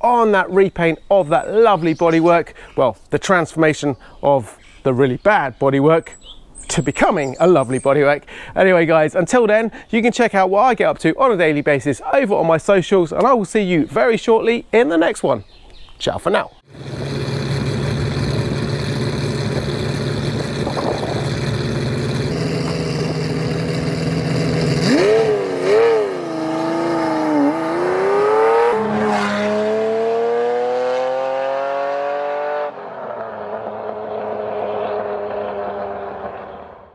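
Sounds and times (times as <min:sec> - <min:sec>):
car engine revving: 0:16.7 - 0:36.9.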